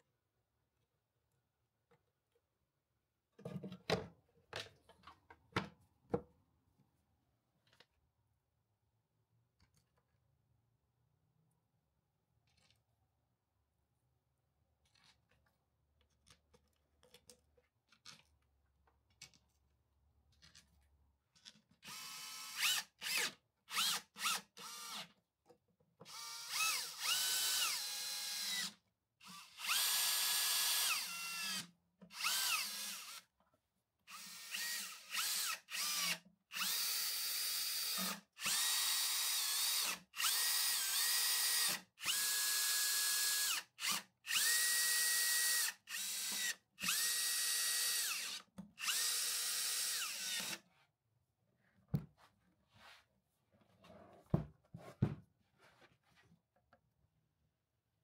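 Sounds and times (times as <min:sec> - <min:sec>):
power screwdriver whine: 0:34.1 - 0:50.6.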